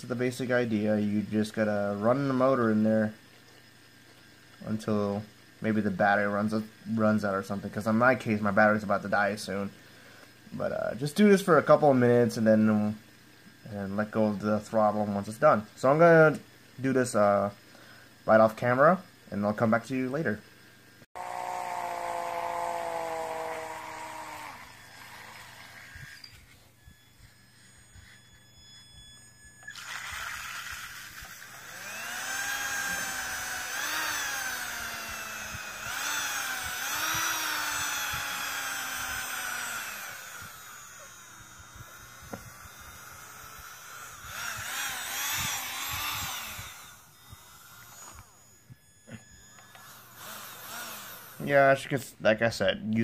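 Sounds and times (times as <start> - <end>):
electric motor whining: 21.1 - 52.0.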